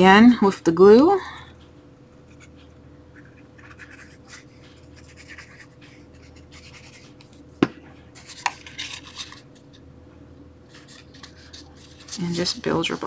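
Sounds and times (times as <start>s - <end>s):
cardstock rustling and scratching: 2.3s - 7.4s, 8.2s - 9.7s, 10.7s - 13.0s
paper handling: 8.2s - 9.7s, 10.7s - 13.0s.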